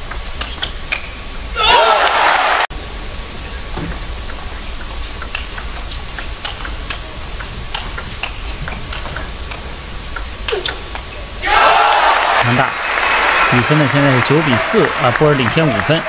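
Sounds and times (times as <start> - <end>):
table tennis ball clicking: 0.0 - 1.3.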